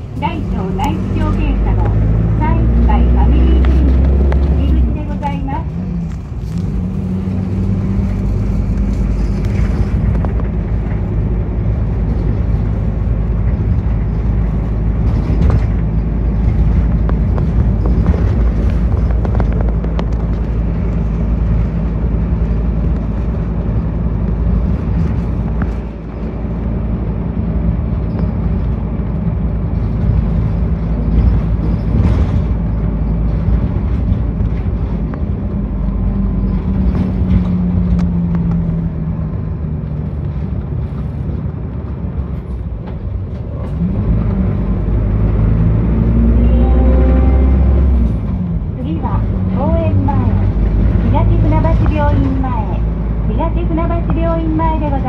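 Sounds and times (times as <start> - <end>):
bus engine drone: 0.0 - 55.0
road noise: 0.0 - 55.0.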